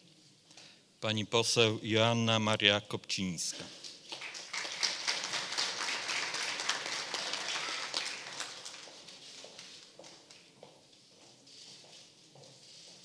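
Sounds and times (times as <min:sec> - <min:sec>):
audience applauding: 0:04.1 - 0:09.4.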